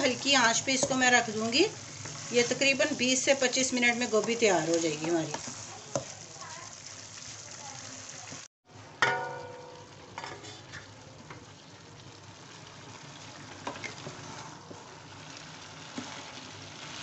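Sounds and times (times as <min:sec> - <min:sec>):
spatula scraping pan: 0:00.0 - 0:06.2, 0:13.5 - 0:15.0
food sizzling in pan: 0:00.0 - 0:08.5, 0:09.4 - 0:17.0.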